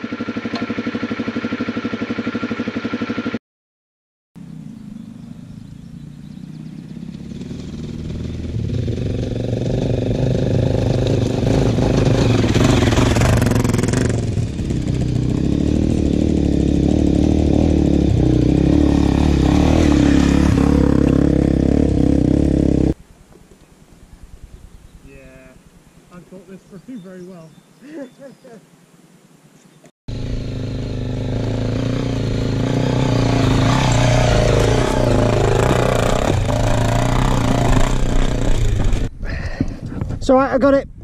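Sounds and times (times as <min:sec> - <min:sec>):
motorcycle engine running: 0:00.0 - 0:03.4, 0:04.4 - 0:23.0, 0:30.1 - 0:39.2.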